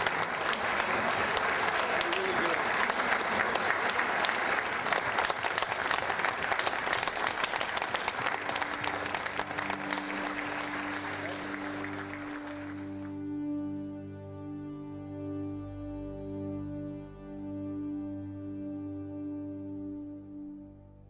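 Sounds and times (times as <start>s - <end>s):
audience applauding: 0.0s - 13.3s
soft music of long held notes: 7.8s - 21.0s.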